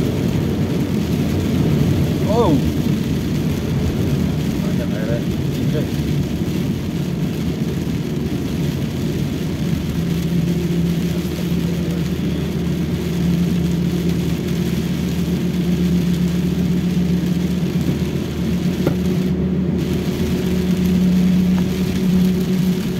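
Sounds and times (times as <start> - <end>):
car engine drone: 0.0 - 22.9
tyre road noise on wet road: 0.0 - 22.9.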